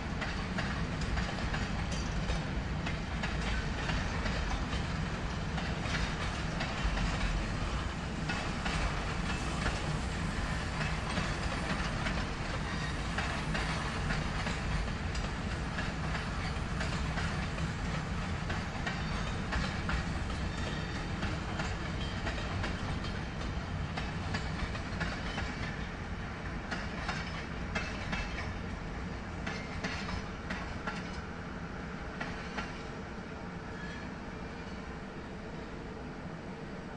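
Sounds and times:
train rolling rumble: 0.0 - 36.9.

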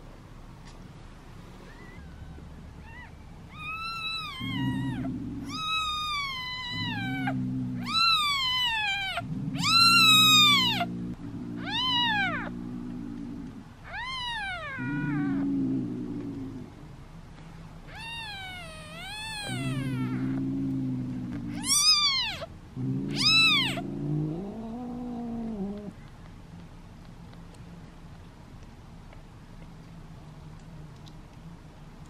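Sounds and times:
kitten mewing: 1.7 - 10.9, 11.5 - 12.6, 17.9 - 20.4, 21.4 - 22.5, 23.1 - 26.0.

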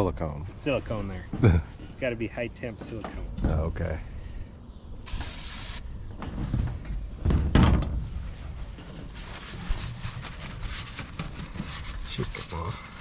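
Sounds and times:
aerosol can spraying: 5.1 - 5.8
paper towel rubbing metal pipe: 5.1 - 5.8, 9.1 - 13.0.

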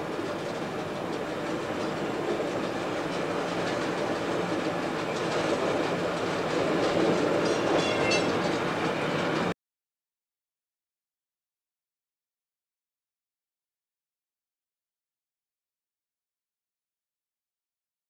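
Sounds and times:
wheels clicking over rail joints: 0.0 - 9.5
diesel railcar rumbling: 0.0 - 9.6.

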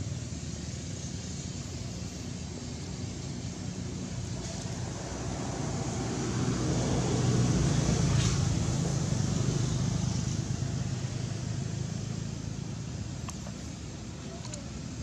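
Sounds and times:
vehicle engine passing: 3.8 - 14.1.

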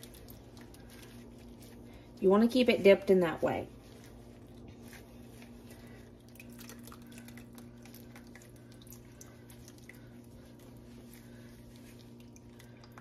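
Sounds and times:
small water splashes and drips: 0.0 - 1.8, 5.6 - 13.0
steady low hum: 0.0 - 13.0.

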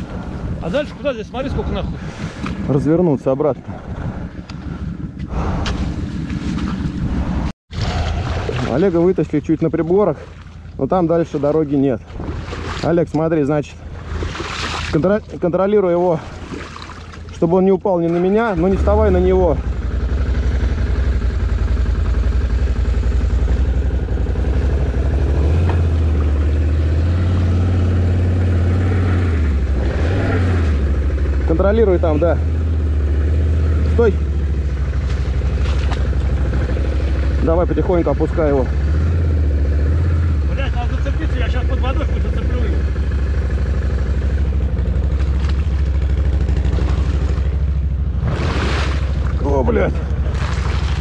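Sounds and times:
atv engine revving: 18.2 - 51.0.

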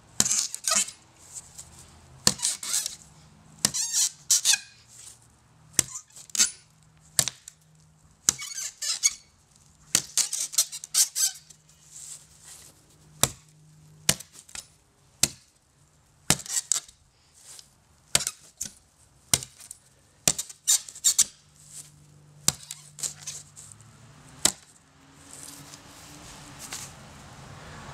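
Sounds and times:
wood splitting crackle: 0.2 - 1.0, 2.2 - 3.0, 5.7 - 23.8, 24.4 - 25.6
knife chopping into plywood: 9.9 - 10.3, 13.2 - 13.4, 15.2 - 15.5, 19.3 - 21.3, 22.4 - 23.3, 24.4 - 24.7.

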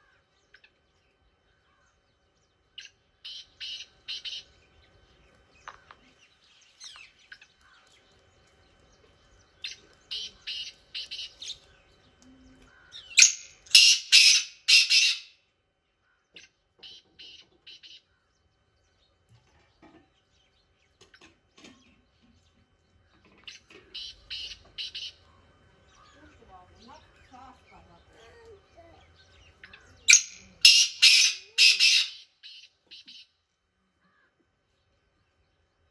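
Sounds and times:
bird calling rapid notes: 13.0 - 15.3, 30.1 - 33.2.

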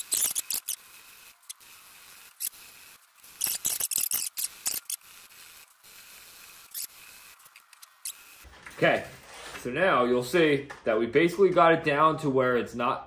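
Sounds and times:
sandpaper scratching: 0.0 - 9.7.

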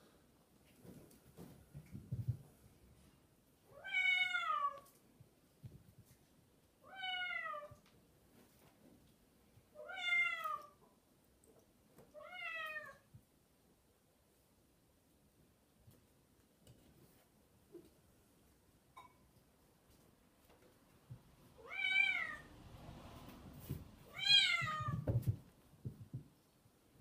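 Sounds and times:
cat meowing: 3.7 - 4.9, 6.8 - 7.8, 9.8 - 10.8, 12.1 - 13.1, 21.6 - 22.5, 24.0 - 25.1
soft rustling: 7.8 - 9.7.

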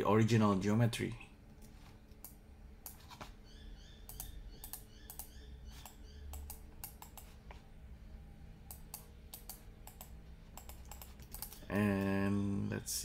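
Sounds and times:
keyboard keys clicking: 8.7 - 12.1.

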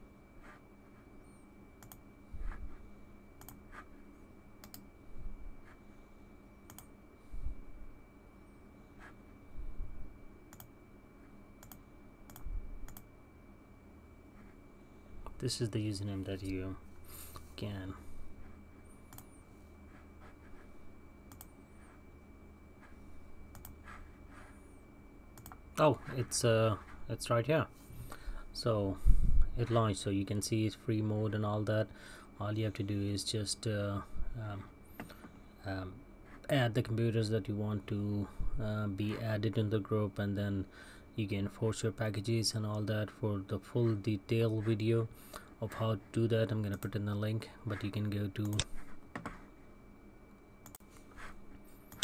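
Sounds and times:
faint electrical hum: 0.0 - 52.0
faint high-pitched whine: 0.0 - 52.0
computer mouse clicks: 1.8 - 2.0, 3.4 - 3.6, 4.6 - 4.9, 6.7 - 6.9, 10.5 - 10.7, 11.6 - 13.1, 19.1 - 19.3, 21.3 - 21.5, 23.5 - 23.8, 25.4 - 25.6.

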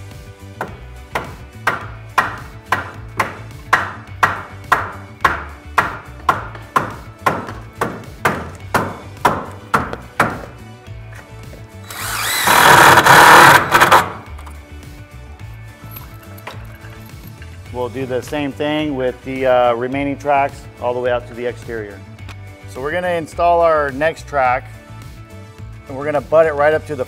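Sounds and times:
background music with beat: 0.0 - 27.0
impact driver driving screw: 11.9 - 14.2.

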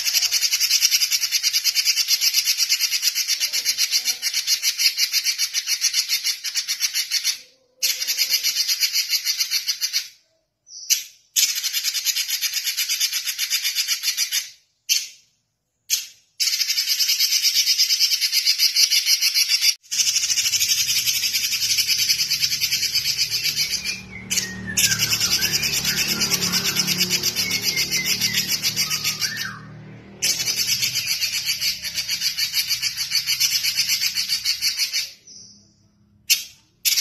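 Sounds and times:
bird singing high trills: 16.4 - 37.0.

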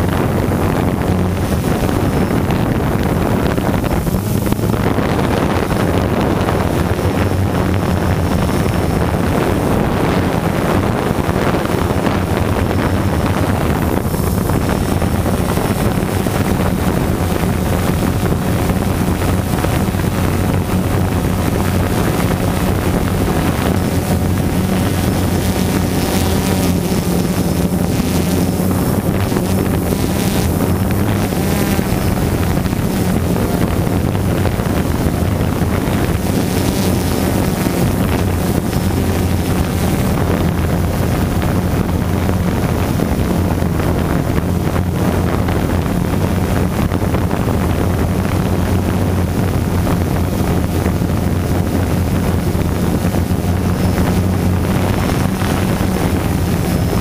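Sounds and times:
drone propellers humming: 0.0 - 57.0
wind on microphone: 0.0 - 57.0.

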